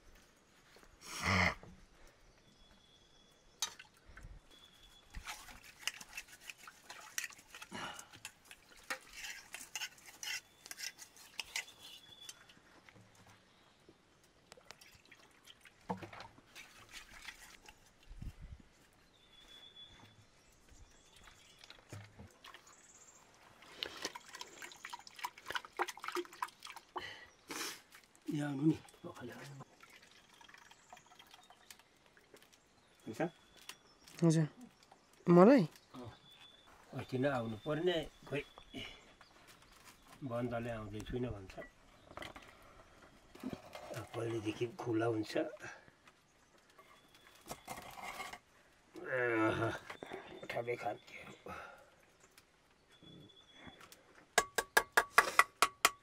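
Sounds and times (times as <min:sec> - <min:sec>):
liquid dripping and sloshing: 0:05.1 - 0:11.6, 0:14.4 - 0:19.0, 0:21.1 - 0:27.2, 0:27.9 - 0:32.6.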